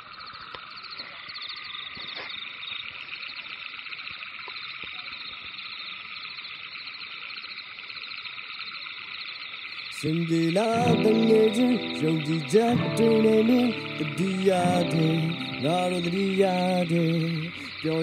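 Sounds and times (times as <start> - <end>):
chorus of pulsing trills: 10.0 - 18.0.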